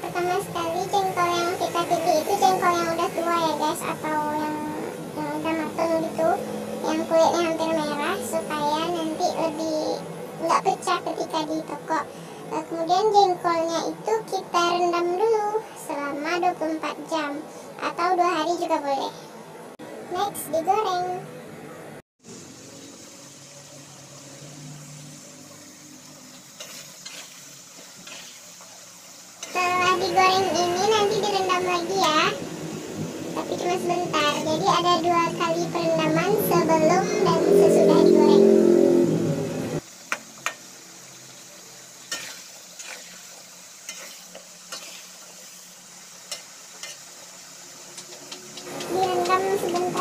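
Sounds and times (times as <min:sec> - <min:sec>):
food sizzling in hot oil: 0:00.0 - 0:18.8, 0:22.2 - 0:50.0
metal spatula scraping pan: 0:26.6 - 0:28.4, 0:42.1 - 0:43.2, 0:43.9 - 0:45.1.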